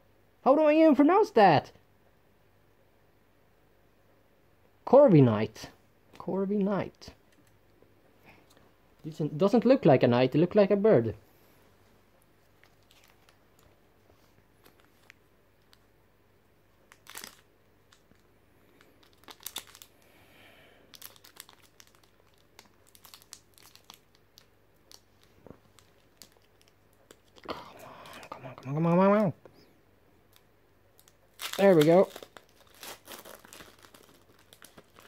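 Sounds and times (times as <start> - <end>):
foil wrapper crinkling and tearing: 12.6 - 13.8, 16.8 - 20.1, 20.9 - 28.4, 31.0 - 35.0.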